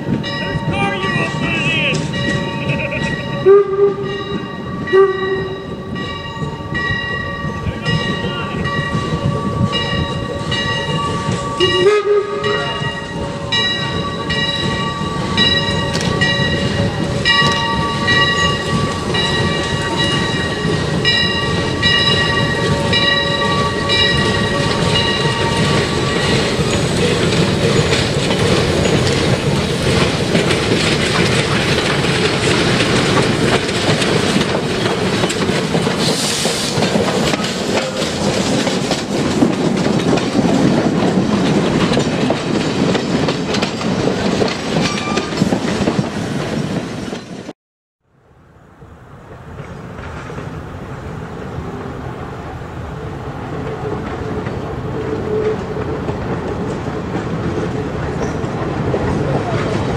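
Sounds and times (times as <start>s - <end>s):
train wheels clattering over rail joints: 0.0s - 11.8s, 12.4s - 47.5s, 54.0s - 59.9s
faint train sound: 0.0s - 47.5s.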